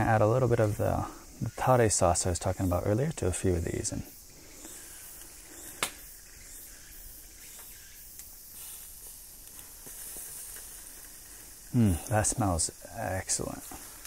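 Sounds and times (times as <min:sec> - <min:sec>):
skewers sizzling on a grill: 0:06.7 - 0:14.0.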